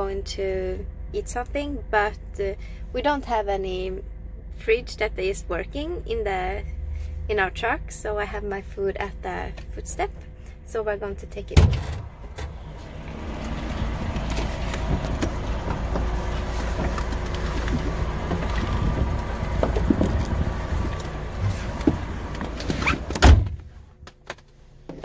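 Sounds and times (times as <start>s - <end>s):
vehicle rumble: 0.0s - 25.0s
outside noise: 5.7s - 25.0s
truck door shutting thump: 21.8s - 23.6s.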